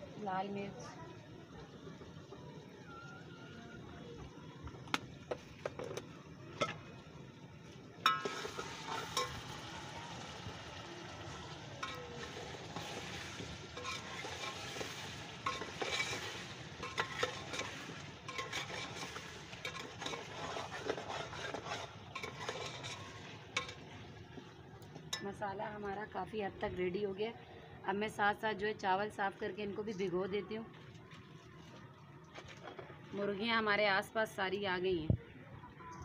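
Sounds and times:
food sizzling in a pot: 4.7s - 26.4s
ladle clinking against pot: 8.0s - 9.4s, 23.6s - 23.8s
metal ladle scraping a pot: 8.1s - 9.6s, 11.8s - 23.9s.

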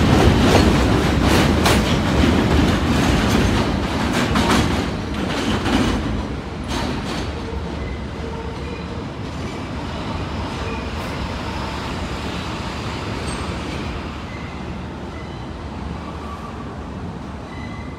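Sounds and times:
train wheels clacking: 0.0s - 8.7s
train rumble: 0.0s - 17.9s.

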